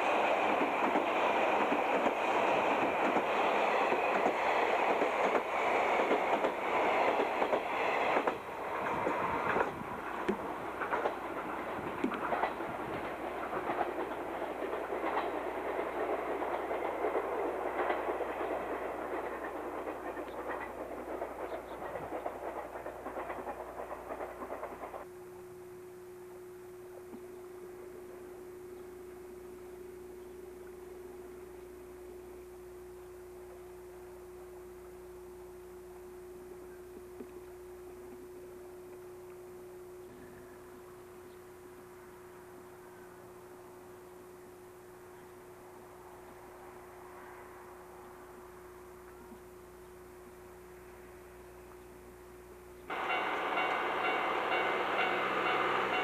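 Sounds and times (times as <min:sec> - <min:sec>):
train wheels clicking over rail joints: 0:00.0 - 0:25.0
faint steady hum: 0:24.7 - 0:56.0.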